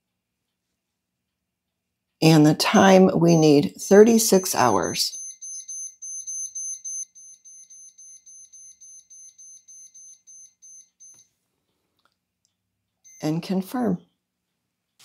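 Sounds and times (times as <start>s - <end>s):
control panel beeping rapidly: 4.0s - 11.2s.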